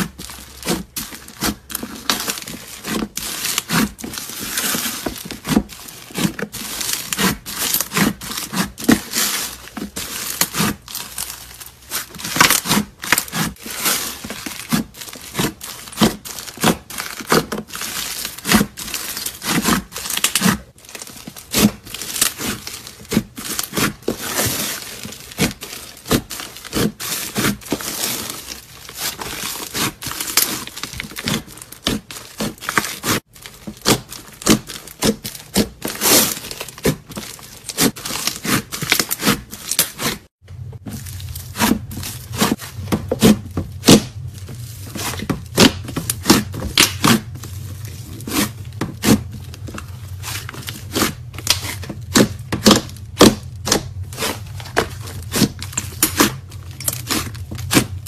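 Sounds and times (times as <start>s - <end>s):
slime crackling and popping: 0.0s - 40.2s.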